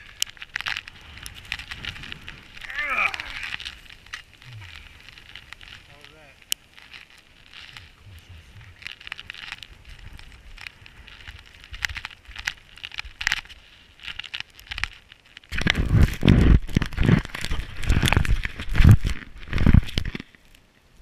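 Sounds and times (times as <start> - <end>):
camera handling crackles and clicks: 0.0 - 7.9, 8.7 - 20.6
hand rubbing and knocking camera: 15.5 - 20.2.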